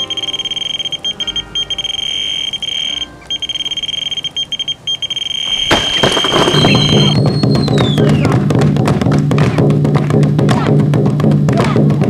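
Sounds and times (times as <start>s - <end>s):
bite alarm beeping: 0.0s - 8.1s.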